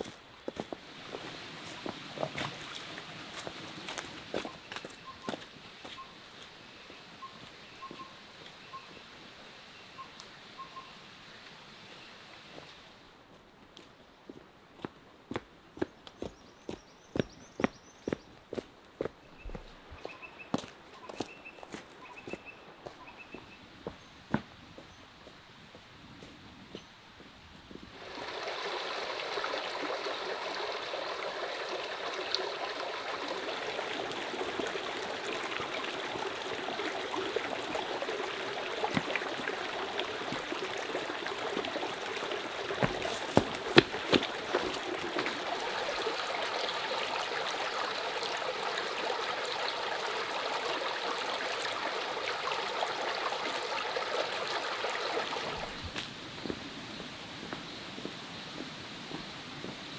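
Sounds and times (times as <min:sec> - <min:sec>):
stream babbling over rocks: 0:00.0 - 0:06.0, 0:27.9 - 0:56.8.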